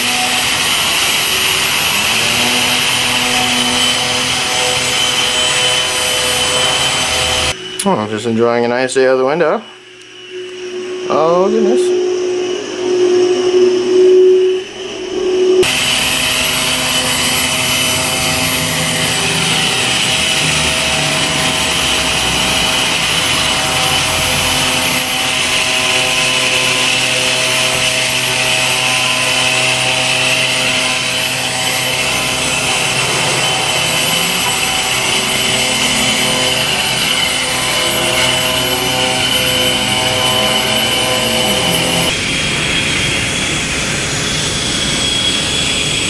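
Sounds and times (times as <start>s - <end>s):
suction fan whirring: 0.0s - 46.0s.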